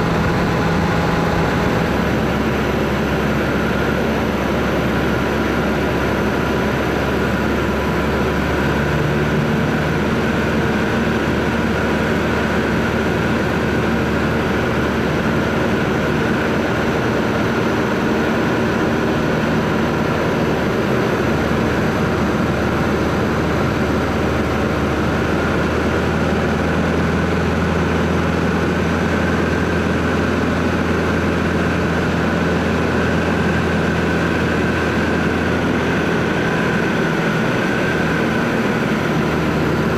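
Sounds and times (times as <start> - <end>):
aircraft engine and propeller droning: 0.0 - 39.9.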